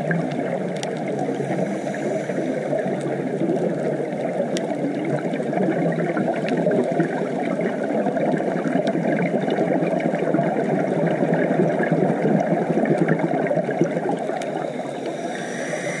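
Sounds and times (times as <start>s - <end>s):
faint sharp clicks: 0.1s - 3.7s, 4.4s - 4.8s.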